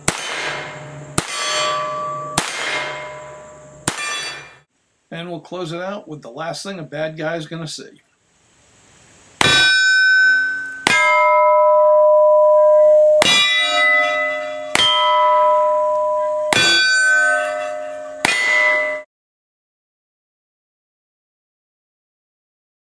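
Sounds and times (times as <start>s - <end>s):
long metallic ringing: 0.0s - 4.6s, 9.4s - 19.1s
revolver shots: 0.0s - 4.6s.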